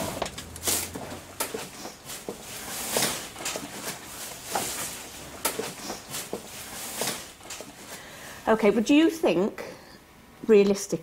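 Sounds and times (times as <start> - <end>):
footsteps indoors: 0.0 - 8.1
rustling: 0.0 - 8.1.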